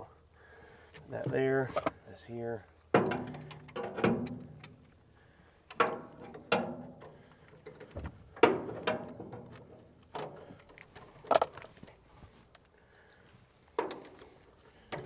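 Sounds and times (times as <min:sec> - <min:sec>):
metal tools clanking on engine: 0:03.0 - 0:04.8, 0:05.7 - 0:11.6.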